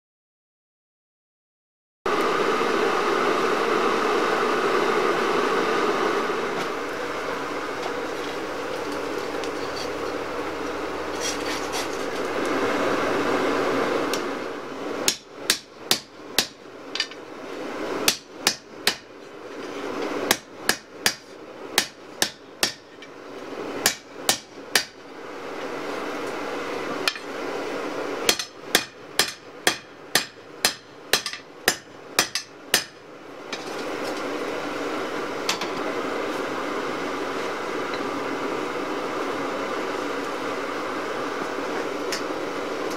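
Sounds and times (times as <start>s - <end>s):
hammer striking steel on anvil: 15.1s - 17.2s, 18.1s - 19.1s, 20.3s - 23.1s, 23.8s - 25.0s, 28.3s - 33.0s.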